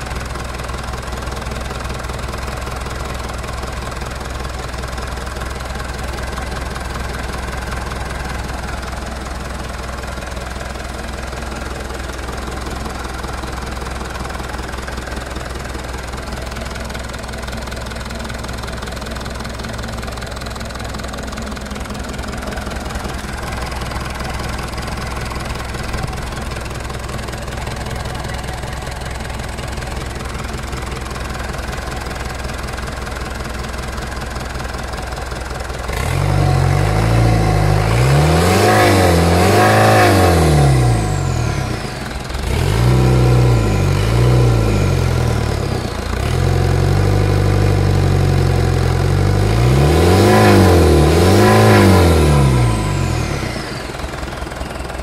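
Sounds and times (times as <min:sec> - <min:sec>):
diesel engine idling and revving: 0:00.0 - 0:55.0.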